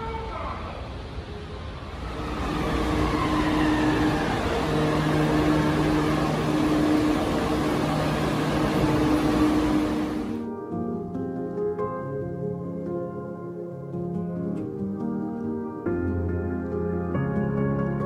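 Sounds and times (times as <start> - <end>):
train braking: 0.0 - 10.4
humming drone: 1.9 - 10.4.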